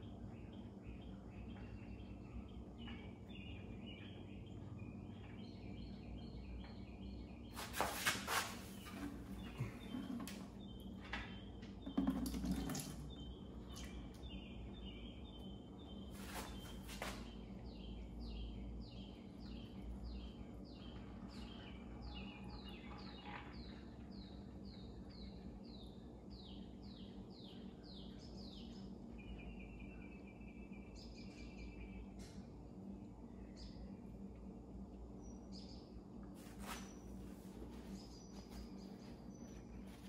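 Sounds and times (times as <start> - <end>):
oil trickling into plastic bucket: 11.8 - 14.0.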